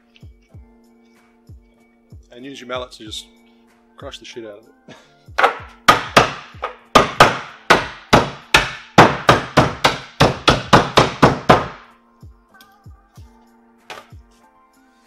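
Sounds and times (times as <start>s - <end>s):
mallet pounding ice: 5.4s - 11.9s.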